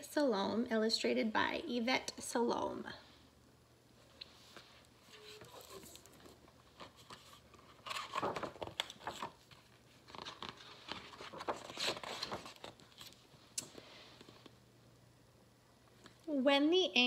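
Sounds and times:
book pages rustling: 0:04.2 - 0:14.6.

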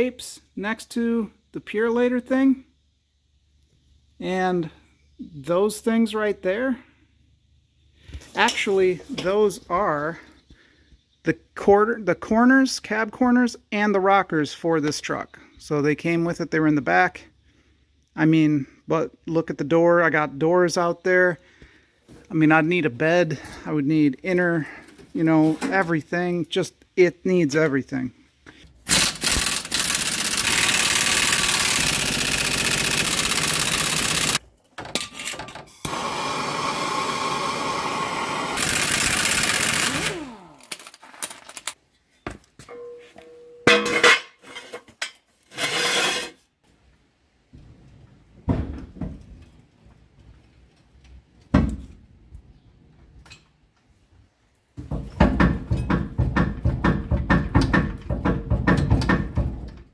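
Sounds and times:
pneumatic impact wrench: 0:28.8 - 0:34.4, 0:35.2 - 0:41.0
metal clanks and knocks: 0:42.6 - 0:45.2, 0:54.8 - 0:59.9.

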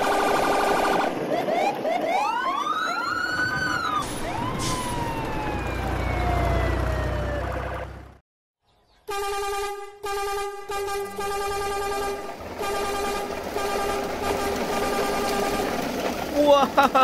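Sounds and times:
siren-like whistle effects: 0:01.4 - 0:07.9.

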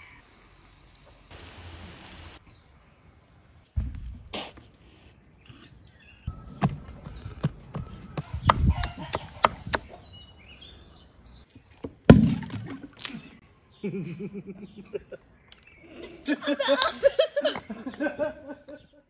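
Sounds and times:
birds chirping: 0:02.4 - 0:11.8, 0:12.9 - 0:19.0
loud thump: 0:03.8 - 0:04.4, 0:12.1 - 0:12.7.

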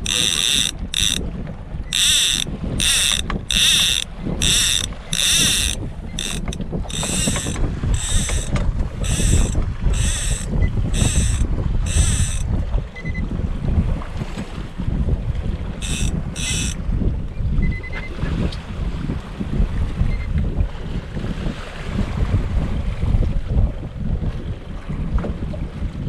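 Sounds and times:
fishing reel ratcheting: 0:00.0 - 0:01.2, 0:01.9 - 0:12.5, 0:15.8 - 0:16.8
boat running: 0:00.0 - 0:17.9
low rumble of wind: 0:00.0 - 0:26.0.

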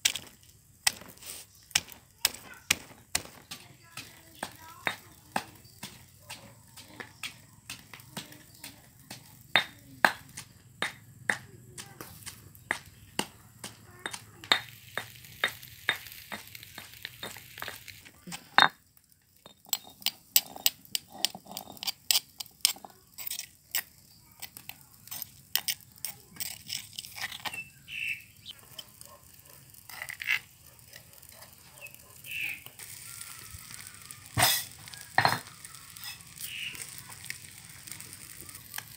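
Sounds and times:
pestle pounding in stone mortar: 0:00.0 - 0:17.8.

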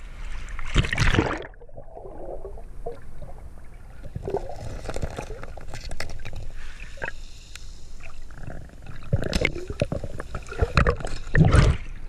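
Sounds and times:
surge of water: 0:00.0 - 0:02.6
muffled underwater water rumble: 0:00.0 - 0:06.6.

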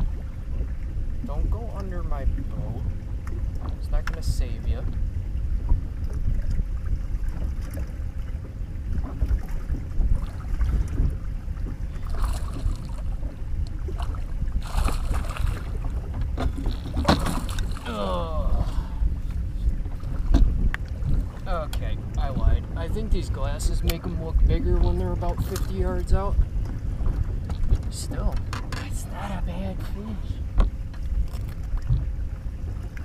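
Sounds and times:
wind rumbling on microphone: 0:00.0 - 0:33.0.

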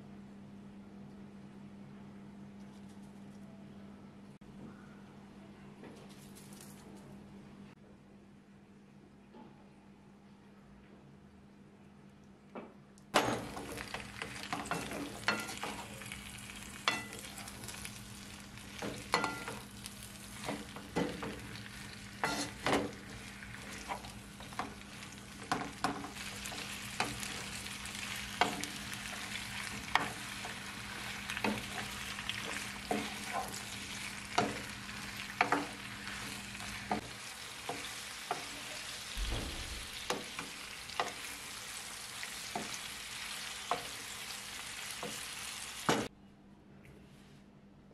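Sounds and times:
vegetables sizzling in a frying pan: 0:13.2 - 0:46.1
wooden spatula scraping a pan: 0:20.3 - 0:27.6.

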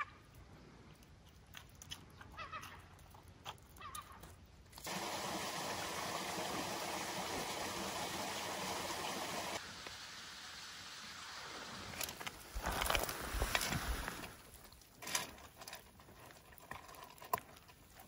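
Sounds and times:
seawater washing over rocks: 0:11.1 - 0:14.7.

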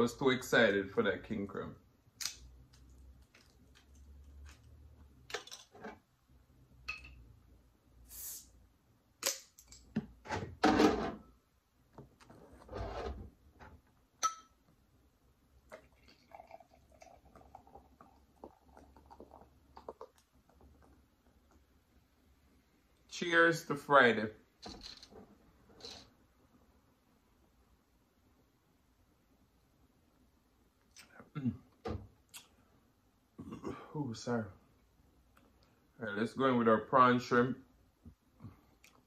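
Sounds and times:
glass and cap clinking: 0:06.8 - 0:07.2, 0:14.2 - 0:14.6
drink pouring: 0:15.6 - 0:21.0.

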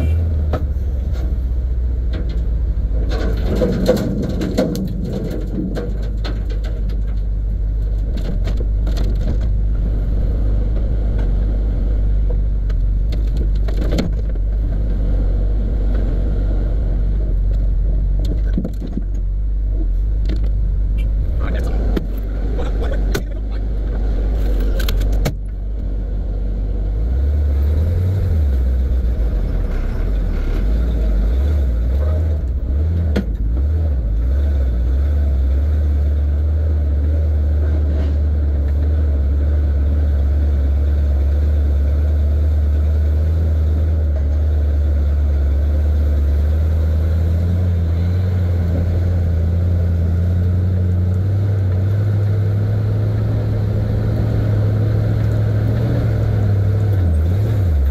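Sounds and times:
truck engine droning: 0:00.0 - 0:57.9
short rattles: 0:02.1 - 0:09.6.

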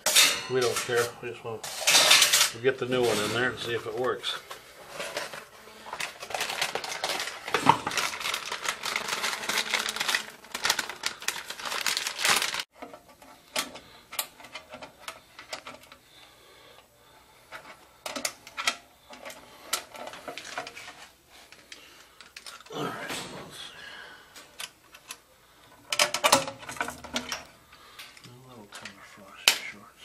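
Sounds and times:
rustles: 0:00.6 - 0:12.7.

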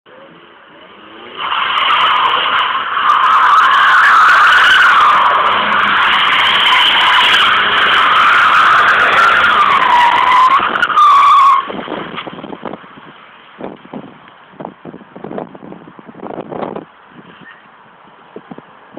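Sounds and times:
car tyres squealing: 0:00.1 - 0:14.0, 0:16.6 - 0:17.8.

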